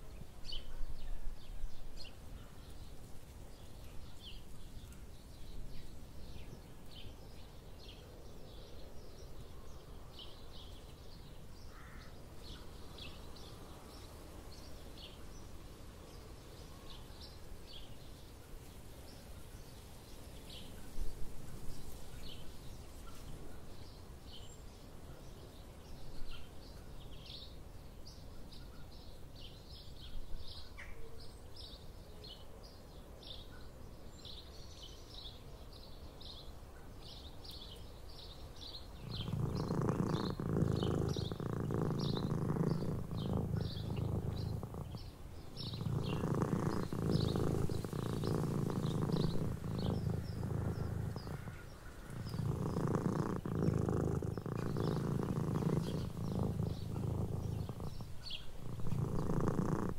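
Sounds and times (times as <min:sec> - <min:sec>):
small birds chirping: 0:00.0 - 0:59.9
cat purring: 0:38.9 - 0:59.9.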